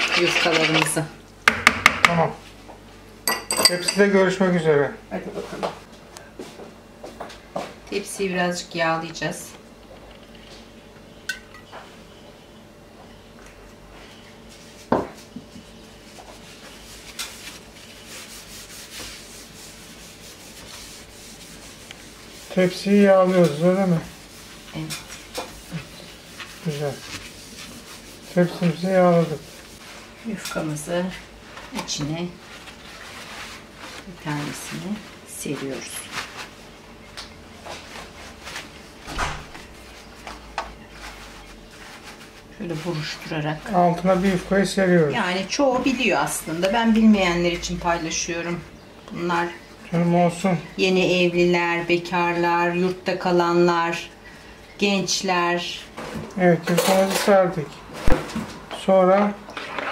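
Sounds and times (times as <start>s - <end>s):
pastry dough rustling and crinkling: 13.5s - 47.0s
hand wiping metal tray: 14.5s - 36.6s.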